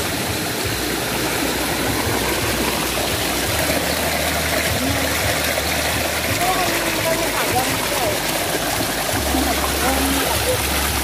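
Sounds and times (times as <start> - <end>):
stream rushing over rocks: 0.0 - 11.0.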